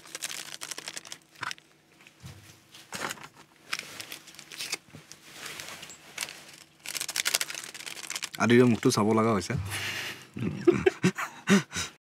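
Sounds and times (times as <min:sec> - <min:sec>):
food packaging crinkling: 0:00.0 - 0:02.2, 0:02.8 - 0:09.3
packaging rustles and soft knocks: 0:00.0 - 0:09.0.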